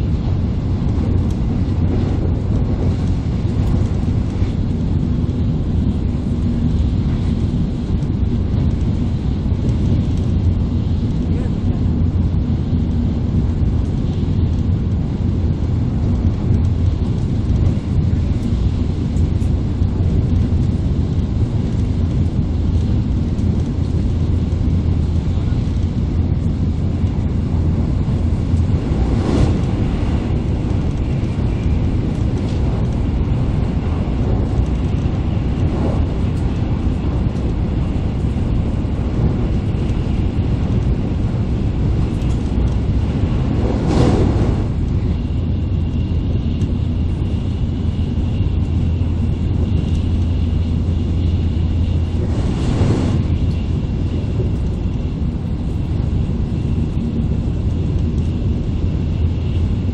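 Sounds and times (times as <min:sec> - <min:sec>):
train rumble inside cabin: 0:00.0 - 0:59.9
train whoosh: 0:28.3 - 0:37.6, 0:41.9 - 0:45.9, 0:51.9 - 0:54.8.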